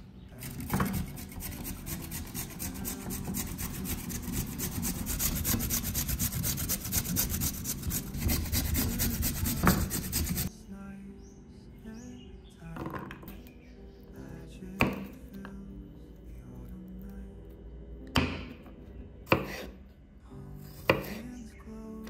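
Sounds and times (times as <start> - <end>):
carrot grated on metal grater: 0.4 - 10.5.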